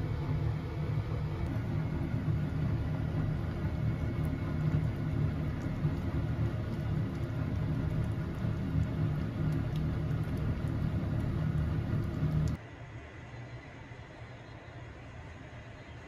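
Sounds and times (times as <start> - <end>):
steady low rumble: 0.0 - 12.6.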